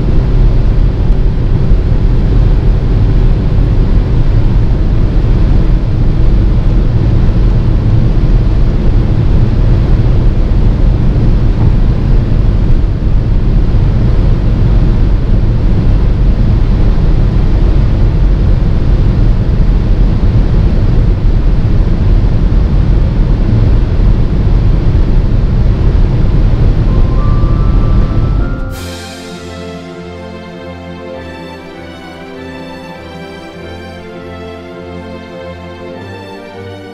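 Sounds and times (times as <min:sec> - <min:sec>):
car cabin wind tyre and engine noise: 0:00.0 - 0:26.9.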